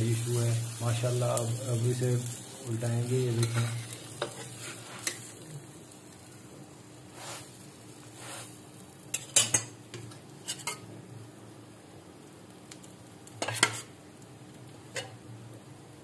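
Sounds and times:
flatbread sizzling: 0:00.0 - 0:16.0
metal spatula scraping griddle: 0:03.3 - 0:05.3, 0:10.4 - 0:10.8, 0:13.4 - 0:13.9.

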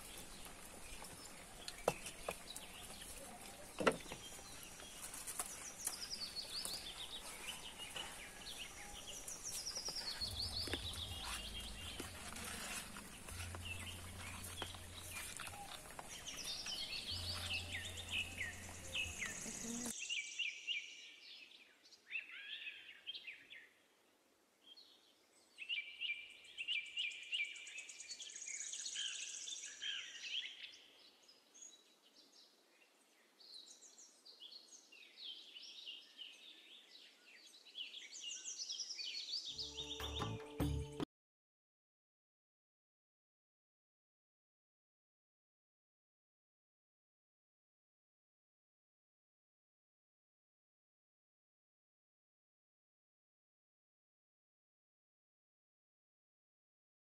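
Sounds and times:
birds singing: 0:00.0 - 0:23.7.

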